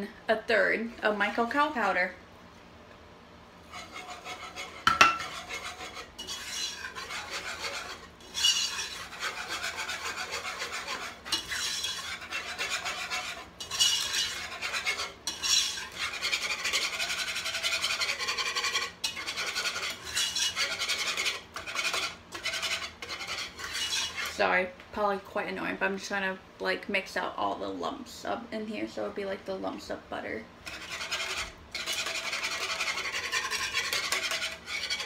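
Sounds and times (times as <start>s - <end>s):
utensil scraping a saucepan: 3.6s - 24.6s, 30.6s - 35.0s.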